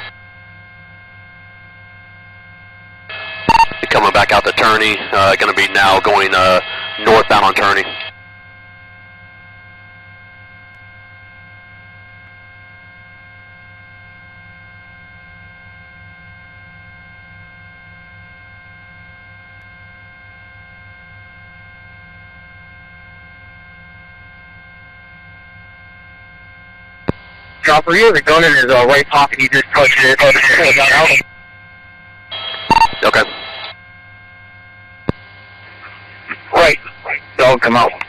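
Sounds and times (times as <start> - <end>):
helicopter cabin hum over intercom: 3.2 - 11.9, 27.4 - 33.7, 35.6 - 38.0.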